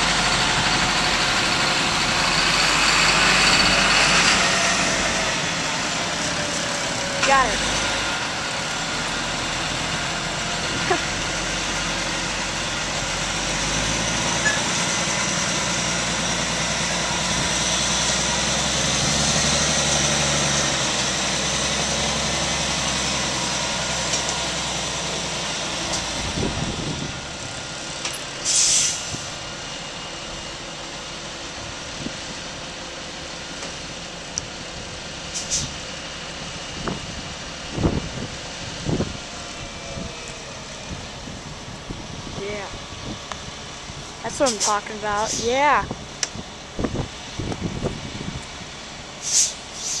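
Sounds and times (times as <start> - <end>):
diesel engines running under load: 0.0 - 50.0
air brakes hissing: 28.4 - 29.4, 35.3 - 35.8, 49.2 - 50.0.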